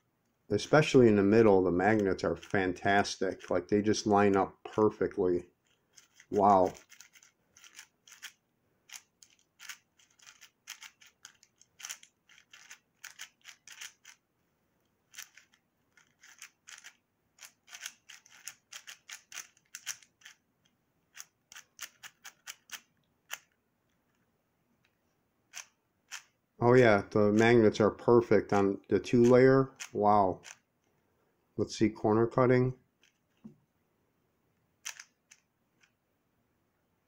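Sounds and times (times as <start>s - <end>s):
plastic clicks of puzzle cube turning: 1.9s - 2.6s, 5.6s - 14.2s, 15.1s - 26.4s, 29.2s - 31.0s, 33.0s - 33.5s, 34.8s - 36.0s.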